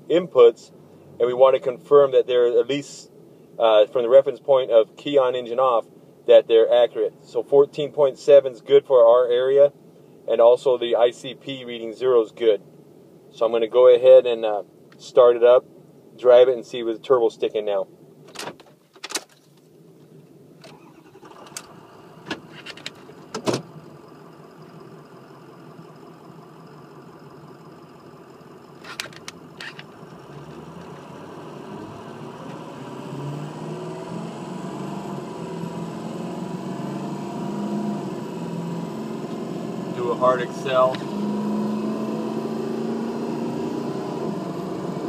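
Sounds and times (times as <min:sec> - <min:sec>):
diesel engine starting and idling: 0:20.6 - 0:45.0
diesel engine accelerating: 0:20.8 - 0:45.0.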